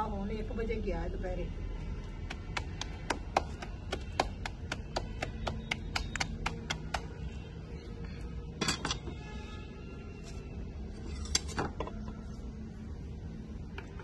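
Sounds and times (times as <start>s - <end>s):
hands slapping dough: 2.2s - 7.3s.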